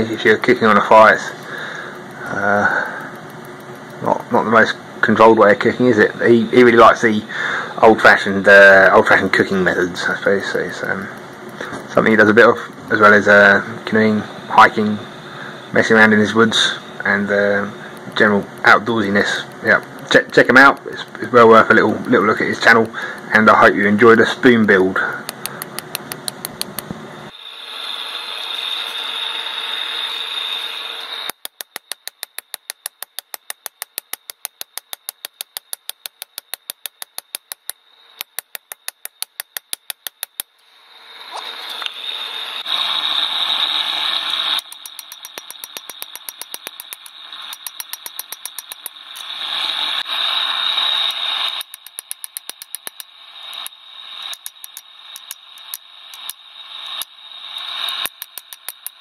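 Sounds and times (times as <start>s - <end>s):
steady hiss: 0.0s - 59.0s
hammer striking steel on anvil: 31.3s - 40.5s, 44.6s - 49.0s, 51.6s - 53.7s.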